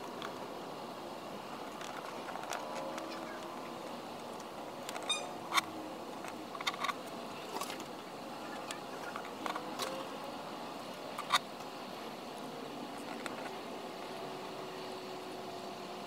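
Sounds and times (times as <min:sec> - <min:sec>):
low hiss: 0:00.0 - 0:16.0.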